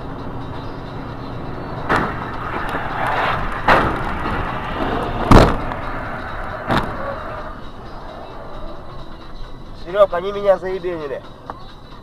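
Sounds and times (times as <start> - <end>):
car road noise: 0.0 - 12.0
heavy collision thumps: 3.5 - 5.9, 6.6 - 7.1.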